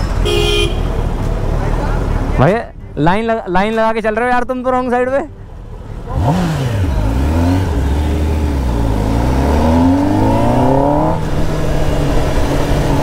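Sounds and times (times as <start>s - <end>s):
motorcycle engine accelerating: 5.7s - 13.0s.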